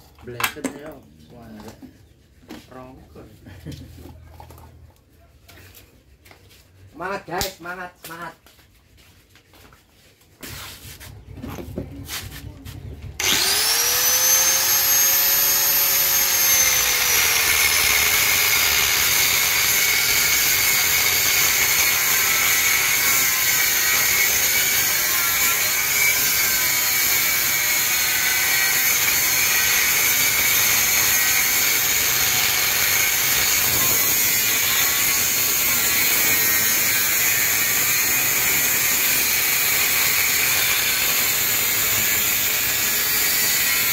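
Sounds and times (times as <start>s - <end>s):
angle grinder cutting metal: 13.2s - 43.9s.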